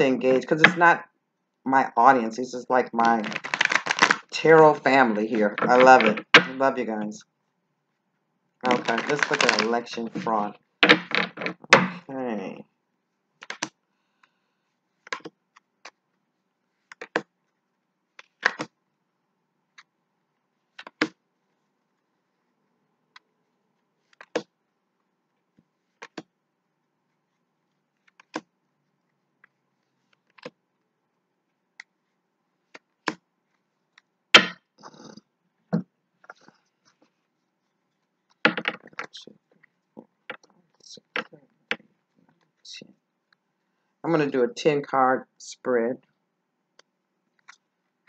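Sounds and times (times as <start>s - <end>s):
cards shuffling clicks and snaps: 3.0s - 4.2s, 8.6s - 11.6s, 13.4s - 13.8s, 15.0s - 16.0s, 18.2s - 18.8s.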